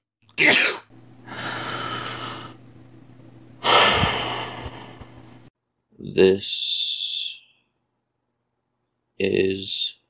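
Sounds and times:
comic mouth-made sneeze: 0.4s - 0.9s.

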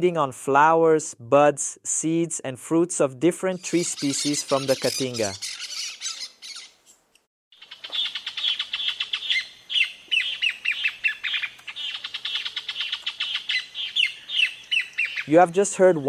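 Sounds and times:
bird chattering song: 3.6s - 7.0s, 7.6s - 16.0s.

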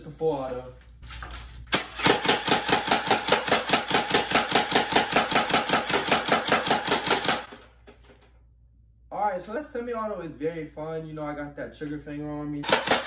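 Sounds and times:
airsoft rifle shots: 1.8s - 7.5s, 12.6s - 13.0s.

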